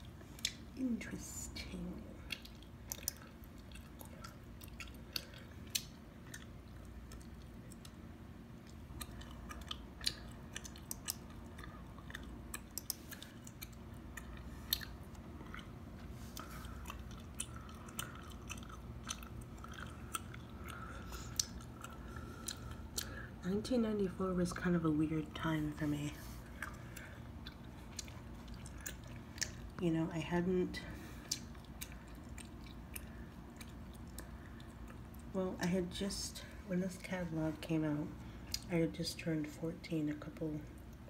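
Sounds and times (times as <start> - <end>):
gum chewing: 0.0 - 0.8, 1.8 - 23.4, 26.4 - 29.8, 30.9 - 35.3.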